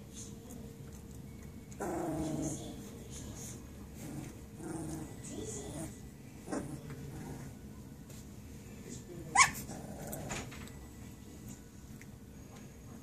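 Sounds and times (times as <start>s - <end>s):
puppies growling and whining: 1.7s - 2.9s, 3.9s - 7.7s, 9.3s - 10.8s.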